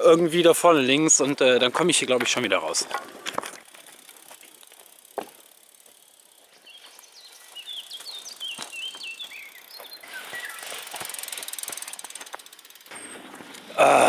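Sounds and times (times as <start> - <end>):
bicycle pushed over sandy track: 0.0 - 14.0
small bird chirping: 5.7 - 11.5.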